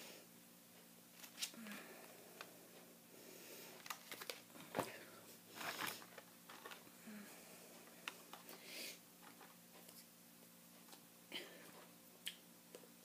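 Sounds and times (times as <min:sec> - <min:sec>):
packaging rustling: 0:03.8 - 0:06.9
plastic packaging clicks and crinkles: 0:03.8 - 0:06.9.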